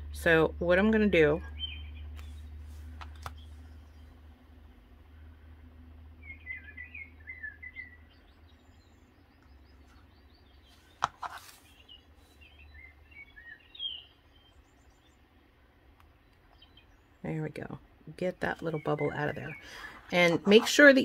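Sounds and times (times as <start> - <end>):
low steady hum: 0.0 - 21.0
small bird chirping: 1.4 - 2.6, 6.2 - 15.4, 16.0 - 17.4, 18.4 - 21.0.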